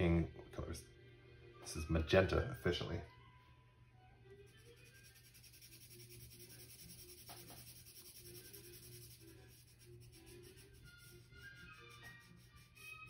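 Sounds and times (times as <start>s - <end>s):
pencil scratching on paper: 4.6s - 13.0s.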